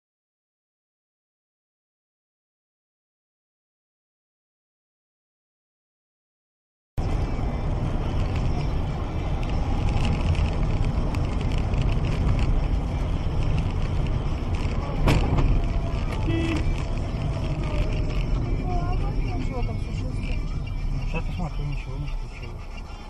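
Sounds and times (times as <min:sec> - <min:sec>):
car road and engine noise: 0:07.0 - 0:23.0.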